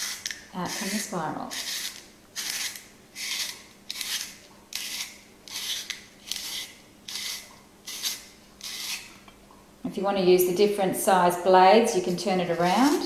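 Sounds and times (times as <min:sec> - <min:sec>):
spiral slicer scraping vegetable: 0:00.0 - 0:09.1, 0:12.5 - 0:13.0.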